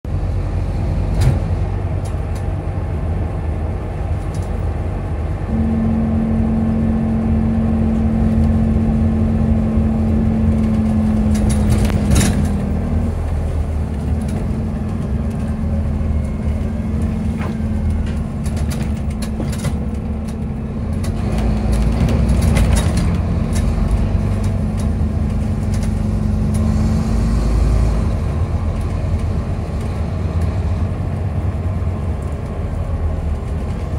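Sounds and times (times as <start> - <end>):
bus engine drone: 0.0 - 33.9
bus body rattles and clicks: 0.1 - 5.5, 6.7 - 33.9
steady whine: 3.3 - 22.1.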